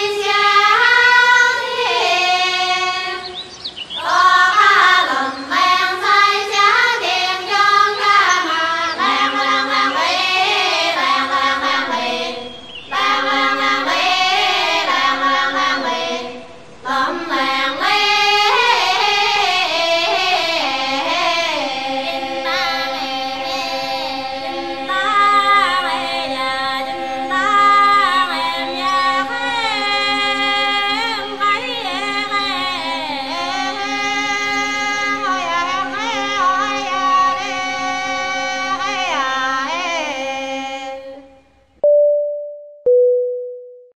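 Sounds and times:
female voices singing: 0.0 - 41.3
short electronic tone: 41.8 - 43.9.

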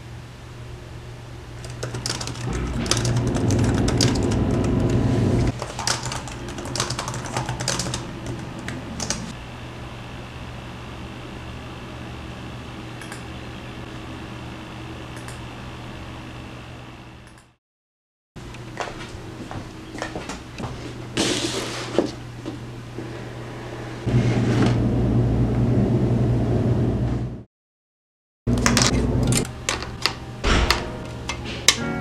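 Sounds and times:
steady hum with high tone: 0.0 - 17.5
loud low rumble: 2.4 - 5.5.

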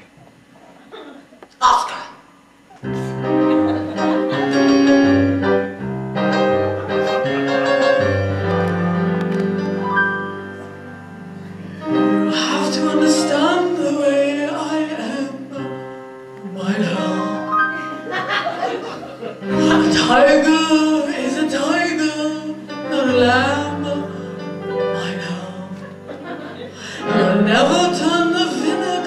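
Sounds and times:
held instrumental notes: 2.8 - 14.4
person singing with vibrato: 11.7 - 18.1, 19.5 - 29.0.

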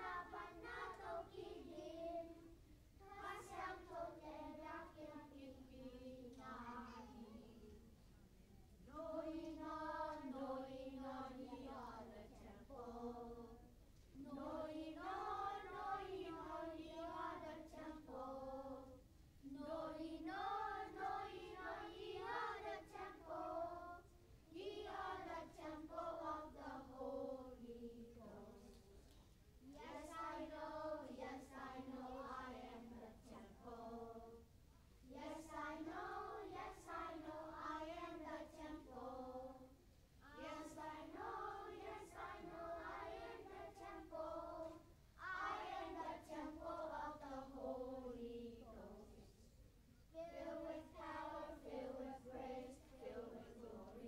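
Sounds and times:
children singing: 0.0 - 2.4, 3.0 - 7.7, 14.3 - 18.9, 19.6 - 28.6, 35.2 - 49.2.

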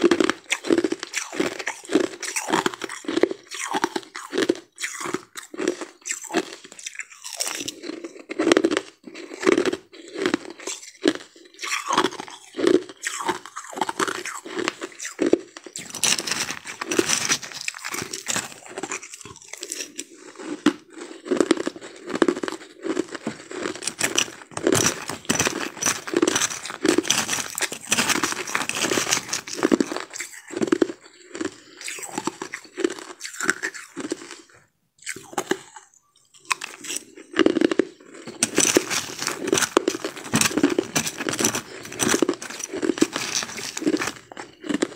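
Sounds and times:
ice crunching: 12.0 - 20.1, 21.3 - 34.3, 36.5 - 44.9.

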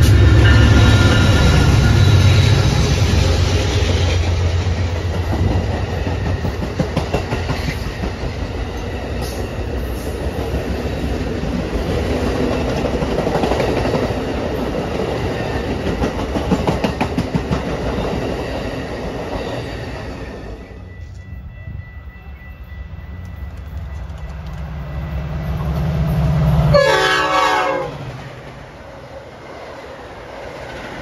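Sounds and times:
train wheels clicking over rail joints: 0.0 - 20.0, 23.1 - 26.0.

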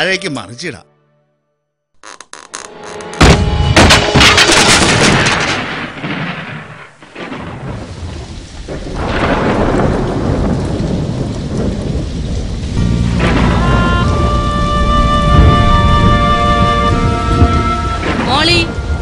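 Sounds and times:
stone crashing with rumble: 3.2 - 11.4.

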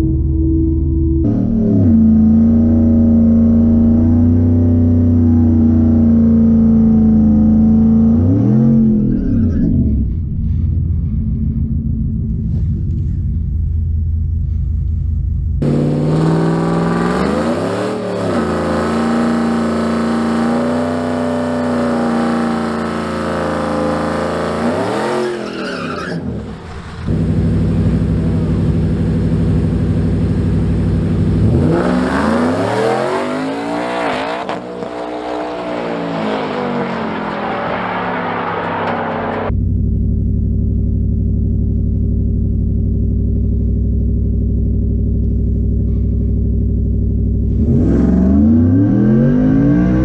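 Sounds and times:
engine idling and revving: 0.0 - 50.0
pickup engines revving outside: 1.2 - 9.9, 15.6 - 39.6, 47.4 - 50.0.

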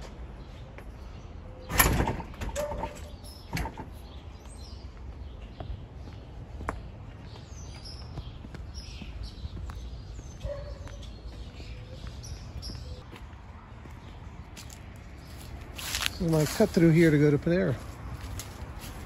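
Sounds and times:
small birds chirping: 0.0 - 19.0
footsteps on concrete: 4.4 - 19.0.

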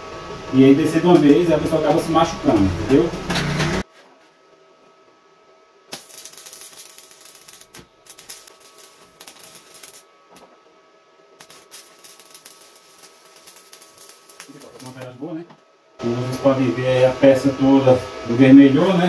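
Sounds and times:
welding arc crackling: 5.9 - 10.5, 11.4 - 15.3.

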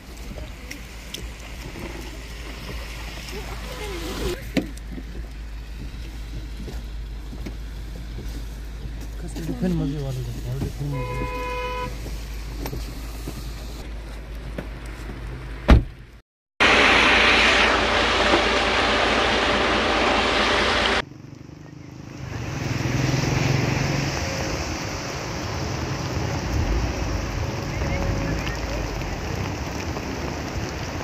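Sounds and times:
traffic rumble: 0.0 - 31.0
vehicle noise: 0.0 - 31.0
short horn-like tone: 10.9 - 11.9.

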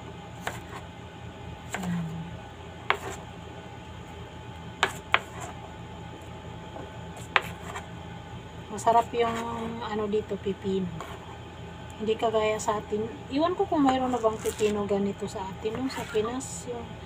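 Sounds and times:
steady low hum: 0.0 - 17.0
knife dicing on cutting board: 2.9 - 3.2, 4.8 - 5.4.

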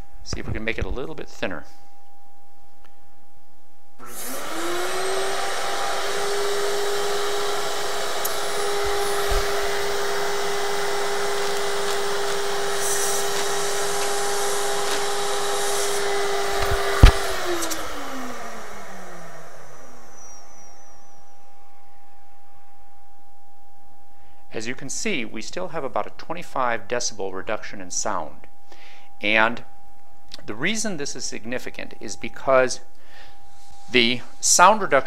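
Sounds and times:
vacuum motor whining: 4.0 - 22.0.

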